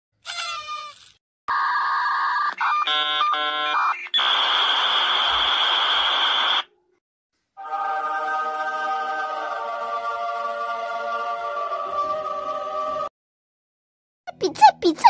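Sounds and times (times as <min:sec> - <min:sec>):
static hiss with high whine: 0:04.2 - 0:06.6.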